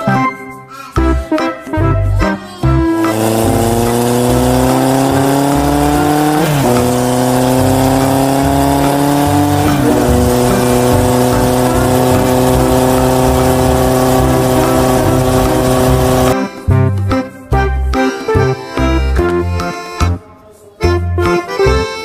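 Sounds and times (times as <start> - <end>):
synthetic engine revving: 3.0 - 16.4.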